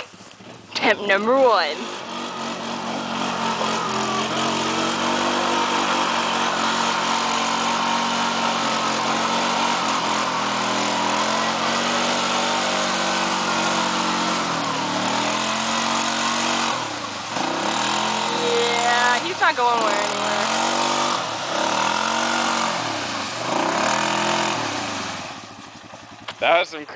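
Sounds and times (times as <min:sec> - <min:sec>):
quad engine at high revs: 0:00.0 - 0:26.8
quad ploughing through mud: 0:00.0 - 0:26.9.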